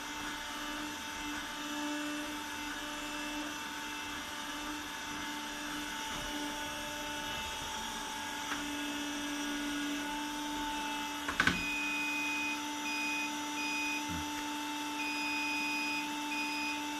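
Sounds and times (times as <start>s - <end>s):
long electronic beeps: 11.6s - 14.2s, 15.0s - 16.9s.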